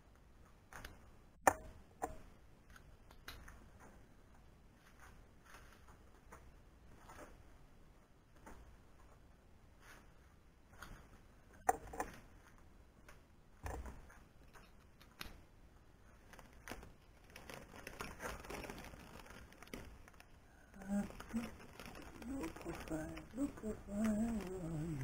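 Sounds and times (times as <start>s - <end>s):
low voice: 20.7s - 25.0s.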